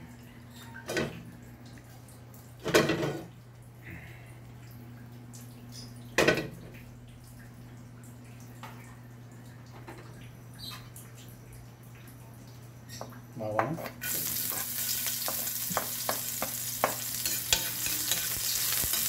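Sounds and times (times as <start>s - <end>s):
wok clanking against stove: 14.2s - 19.0s.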